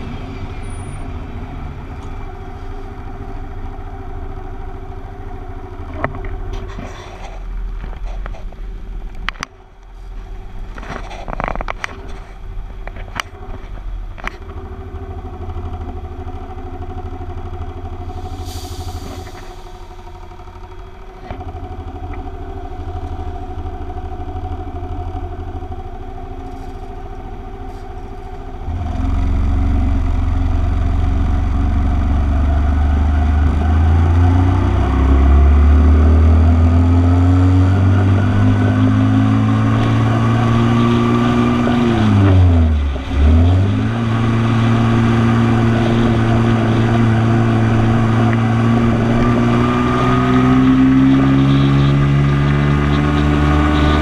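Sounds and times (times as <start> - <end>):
motorcycle engine revving: 26.6 - 54.0.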